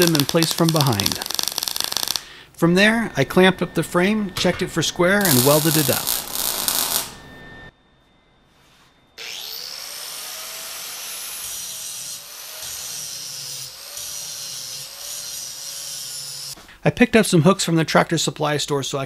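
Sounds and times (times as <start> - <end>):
angle grinder grinding steel: 0.0 - 2.2, 5.2 - 7.2, 9.2 - 16.6
arc welding crackling hiss: 0.0 - 2.3, 5.2 - 7.2, 10.8 - 16.6.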